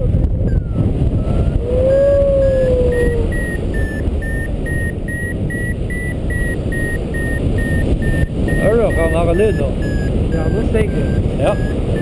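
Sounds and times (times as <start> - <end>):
hum-like tone: 0.0 - 12.0
wind on microphone: 0.0 - 12.0
variometer beeping: 0.1 - 1.6, 2.4 - 12.0.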